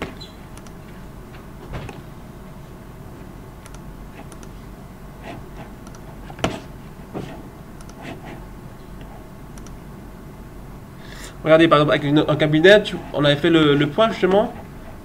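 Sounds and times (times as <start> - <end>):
room hum: 0.0 - 15.0
computer mouse clicks: 0.5 - 0.8, 3.6 - 4.6, 5.8 - 6.1, 7.8 - 8.2, 9.0 - 9.8.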